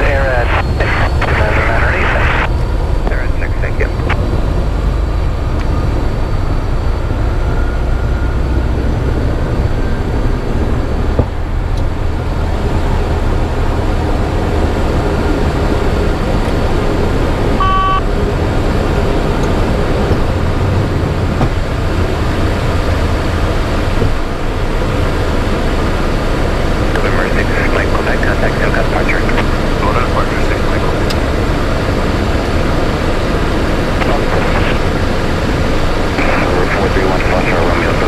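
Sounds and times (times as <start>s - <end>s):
jet engines at takeoff power: 0.0s - 38.0s.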